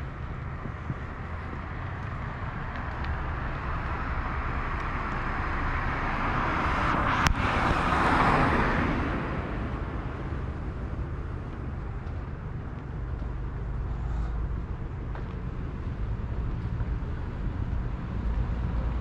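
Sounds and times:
car driving past: 0.0s - 12.0s.

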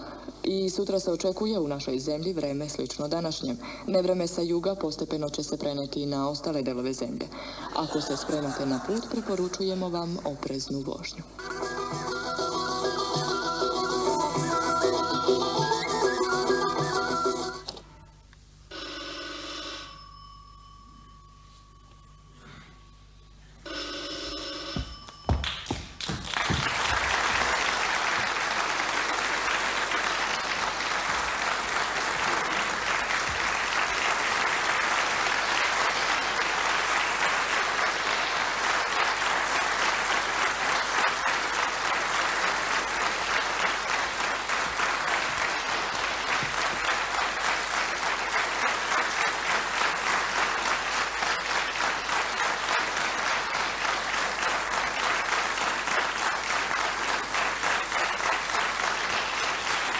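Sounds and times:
audience applauding: 25.3s - 59.9s.

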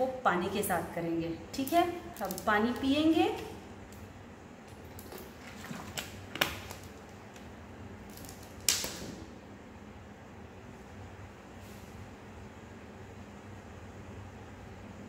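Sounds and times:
plastic bottle clicking and crinkling: 4.9s - 7.5s.

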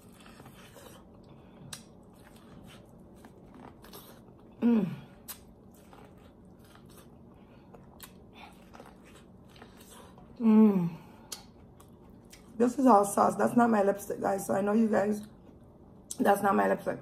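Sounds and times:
chewing corn on the cob: 0.0s - 10.4s
person humming: 10.4s - 11.0s.

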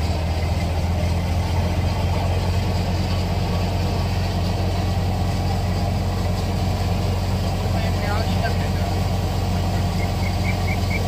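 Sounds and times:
low engine drone: 0.0s - 11.0s
thresher running hum: 0.0s - 11.0s.

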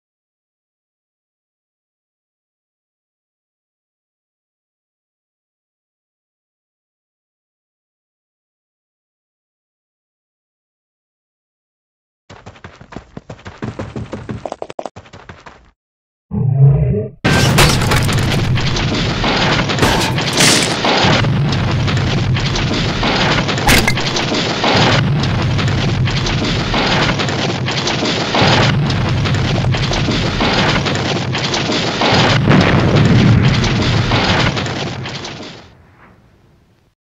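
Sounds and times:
deep rumble: 16.3s - 36.2s
cracks and knocks: 17.3s - 28.2s.

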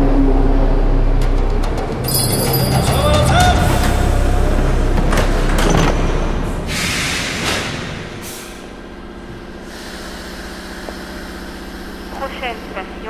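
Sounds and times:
train carriage electric hum: 0.0s - 13.0s
compressed air hiss: 9.6s - 11.5s.

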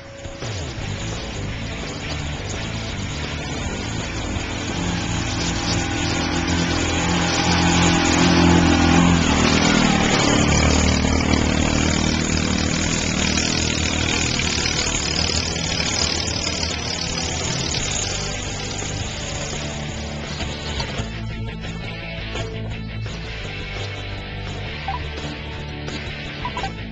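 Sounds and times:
utility vehicle engine driving past: 0.0s - 21.2s.

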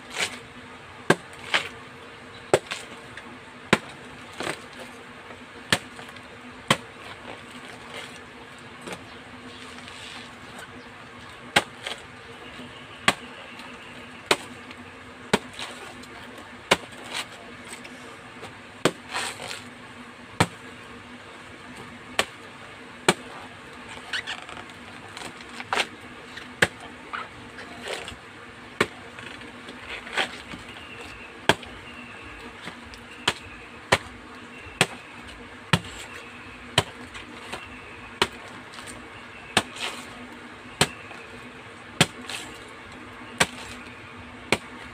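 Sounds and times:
faint steady hum: 0.0s - 44.9s
machete chopping banana trunk: 0.1s - 1.8s, 2.5s - 3.1s, 3.7s - 4.9s, 5.6s - 8.2s, 8.8s - 9.1s, 11.5s - 19.7s, 20.4s - 20.7s, 22.1s - 23.4s, 24.0s - 28.2s, 28.8s - 41.3s, 41.9s - 42.7s, 43.3s - 44.9s.

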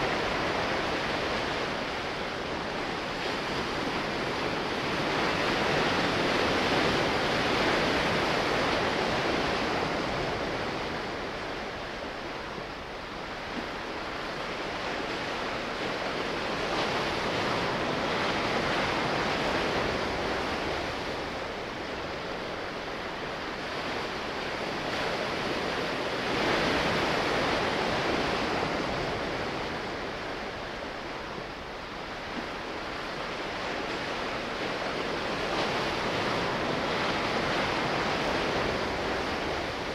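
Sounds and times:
sea waves washing: 0.0s - 39.9s.

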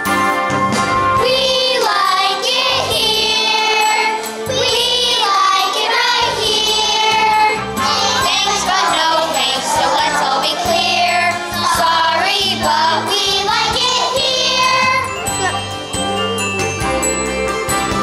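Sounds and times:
musical accompaniment: 0.0s - 18.0s
children's choir singing: 1.2s - 15.2s.

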